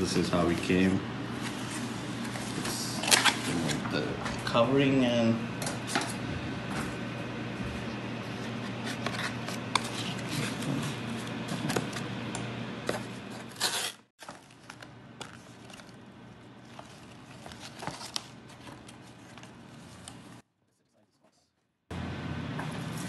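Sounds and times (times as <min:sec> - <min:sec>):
cardboard and paper rustling: 0:08.7 - 0:12.1, 0:12.9 - 0:20.4
plastic wrap crinkling: 0:13.7 - 0:20.3.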